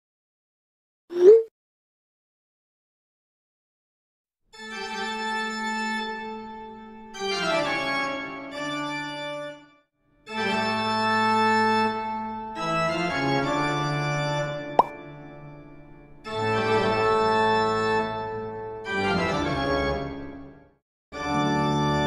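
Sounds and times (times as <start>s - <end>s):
organ playing sustained chords: 10.4s - 15.2s.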